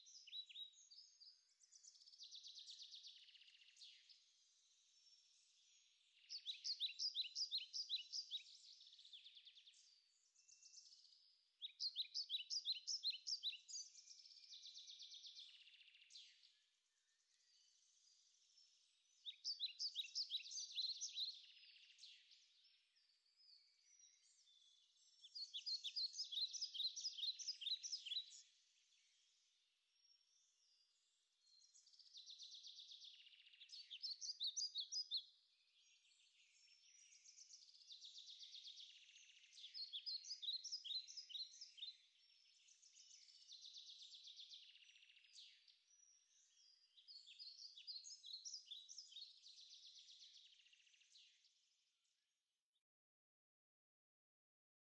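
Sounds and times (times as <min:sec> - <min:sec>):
songbird singing: 0:00.0 - 0:52.9.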